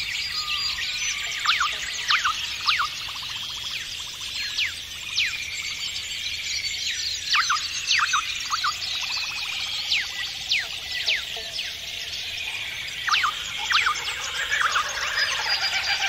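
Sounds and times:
high bird chorus: 0.0 - 16.0
downward-sweeping bird whistles: 4.4 - 11.3, 12.4 - 16.0.

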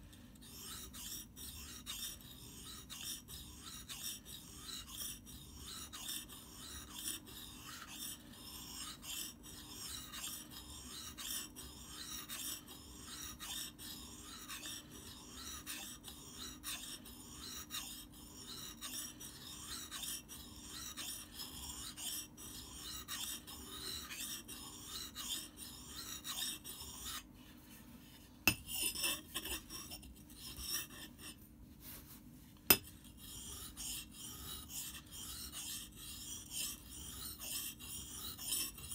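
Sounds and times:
axe scraping on whetstone: 28.5 - 31.4.

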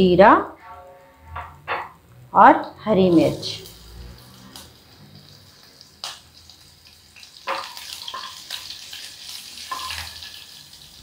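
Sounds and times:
wooden spatula knocking pan: 0.6 - 2.0
seeds sizzling in hot oil: 3.3 - 11.0.

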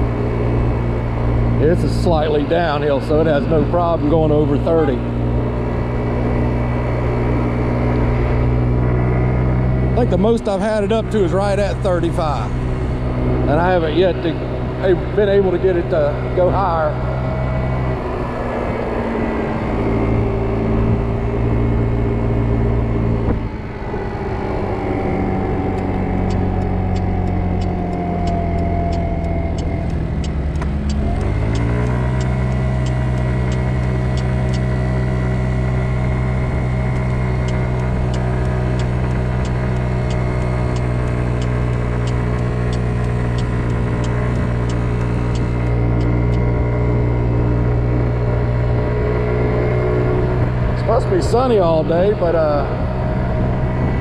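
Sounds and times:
scooter engine revving: 0.0 - 54.0
faint regular ticking: 25.8 - 34.8, 36.9 - 46.4.

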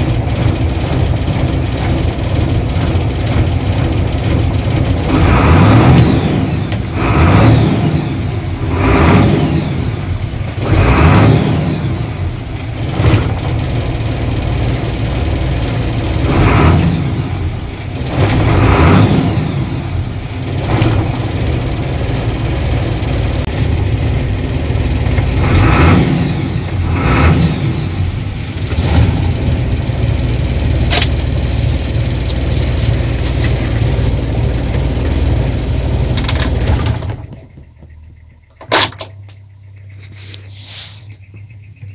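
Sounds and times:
diesel truck engine revving: 0.0 - 37.6
sharp click: 30.9 - 31.2.

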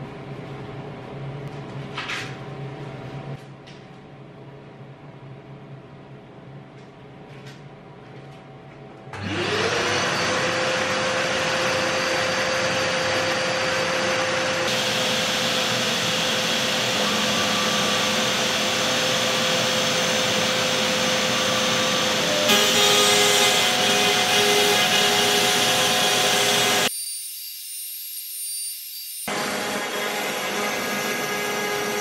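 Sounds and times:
router spindle whirring: 9.2 - 32.0.

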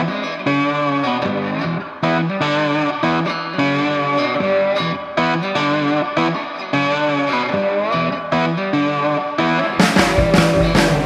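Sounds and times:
distorted electric guitar chords: 0.0 - 11.0.

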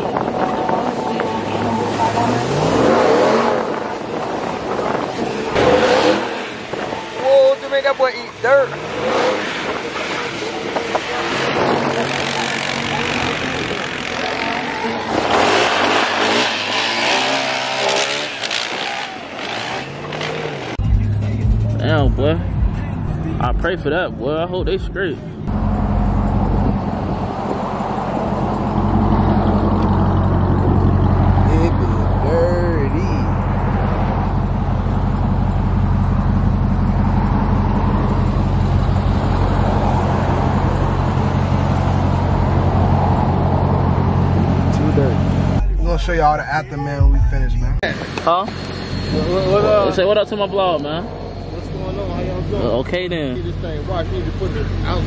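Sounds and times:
engine revving: 1.4 - 6.8, 8.4 - 22.5
loud rushing noise: 8.8 - 19.8.

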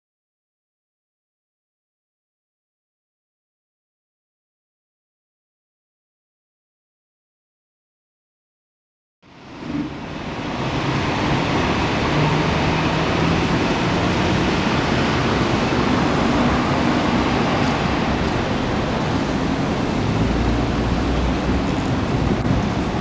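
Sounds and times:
city street traffic roar: 9.2 - 23.0.

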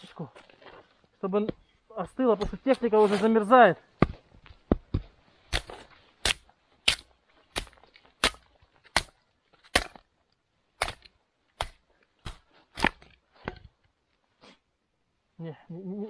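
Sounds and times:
axe chopping firewood: 4.0 - 10.1, 10.7 - 13.8.

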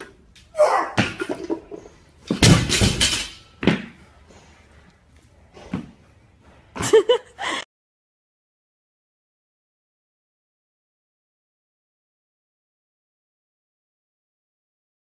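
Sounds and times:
man grunting: 0.6 - 1.1
barbell crashing onto floor: 2.3 - 3.9.

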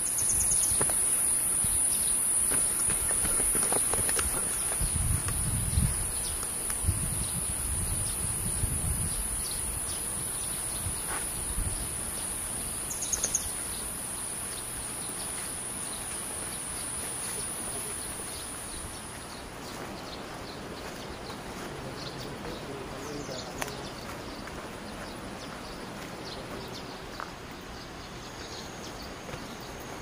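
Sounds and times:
insects buzzing: 0.0 - 30.0
footsteps on grassy trail: 0.2 - 7.5, 10.1 - 30.0.

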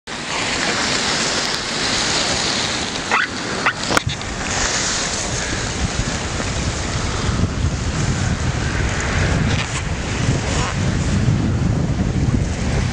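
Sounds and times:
river ice grinding: 0.1 - 11.4
ice squeaking: 3.1 - 3.8.

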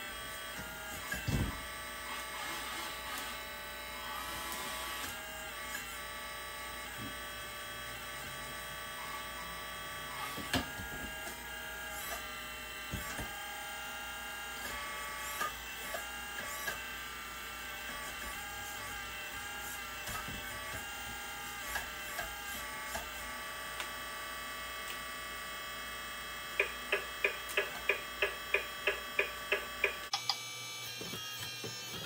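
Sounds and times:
electric hydraulic pump whine: 0.0 - 32.0.

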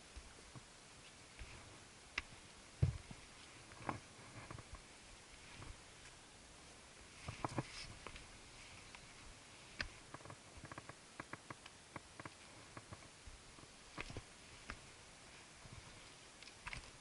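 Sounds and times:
footsteps on rocky trail: 1.3 - 6.2.

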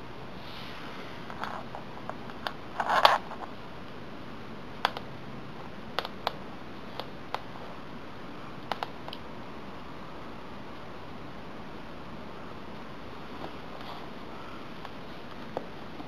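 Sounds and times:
cable clicks and taps on floor: 6.0 - 7.5.

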